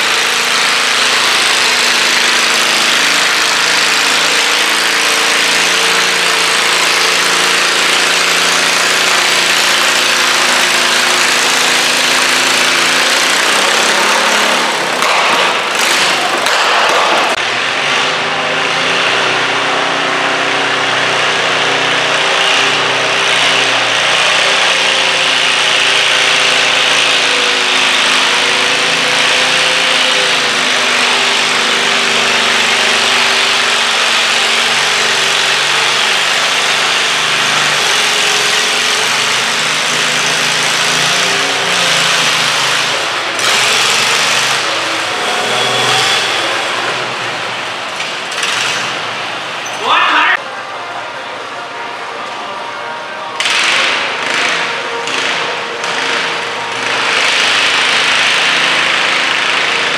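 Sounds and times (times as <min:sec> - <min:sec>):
tractor engine running under load: 0:00.0 - 0:49.7, 0:50.4 - 0:59.9.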